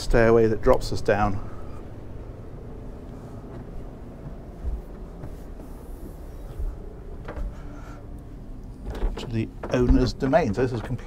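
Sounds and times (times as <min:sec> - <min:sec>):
low background hum: 0:00.0 - 0:11.0
footsteps on stairs: 0:03.0 - 0:08.0
rubbing and handling noise: 0:03.0 - 0:11.0.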